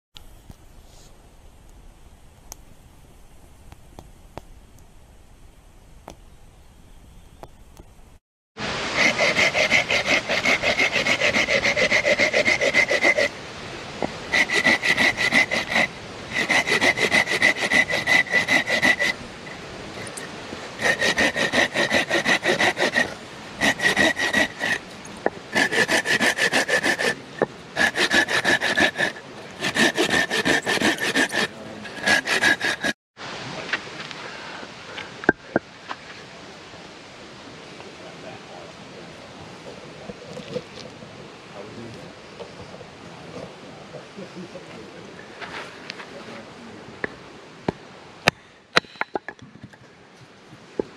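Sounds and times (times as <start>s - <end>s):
hand saw cutting a log: 8.8s - 13.4s, 14.0s - 24.9s, 25.5s - 33.0s.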